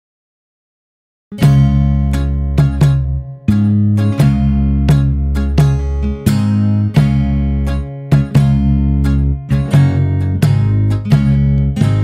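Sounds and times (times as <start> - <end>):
strummed guitar chords: 1.3 - 12.0.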